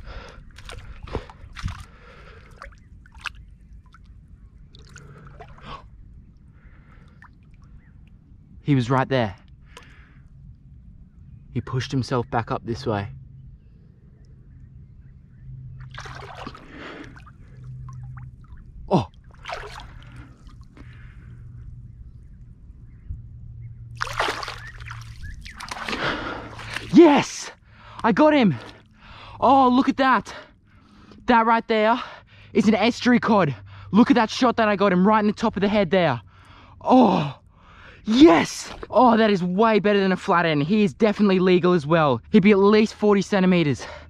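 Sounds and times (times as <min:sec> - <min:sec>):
mud squelching: 0:00.0 - 0:05.8, 0:15.8 - 0:21.3, 0:23.9 - 0:30.1
hands splashing in water: 0:00.6 - 0:03.4, 0:15.8 - 0:18.6, 0:19.2 - 0:20.8, 0:24.0 - 0:27.0.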